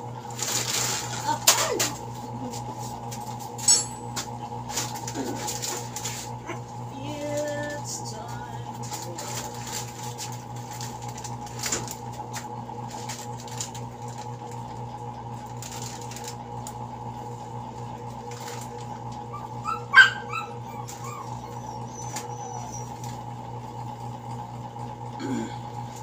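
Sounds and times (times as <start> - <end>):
steady low hum: 0.0 - 26.0
plastic packets crinkling: 0.3 - 1.4, 8.8 - 12.1, 12.8 - 14.3, 15.6 - 16.4.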